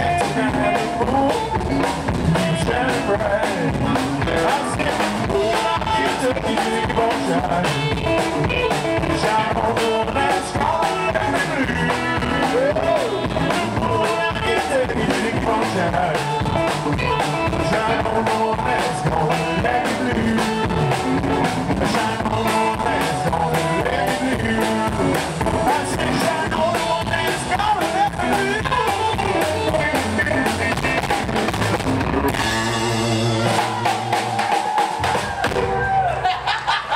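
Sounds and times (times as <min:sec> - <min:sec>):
busy drumming: 0:00.0 - 0:36.8
rockabilly band playing: 0:00.0 - 0:36.9.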